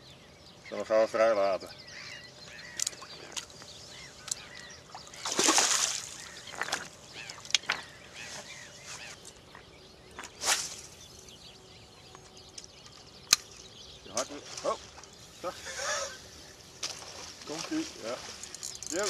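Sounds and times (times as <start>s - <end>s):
waterfowl calling: 1.9s - 9.6s, 13.3s - 18.3s
water splash: 4.9s - 6.9s.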